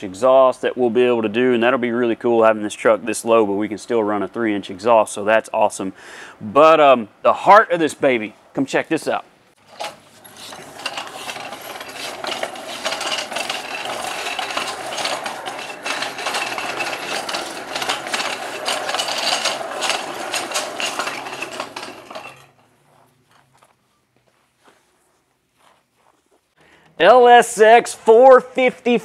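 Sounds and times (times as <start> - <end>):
casters rattling on tiled floor: 9.6 - 22.6.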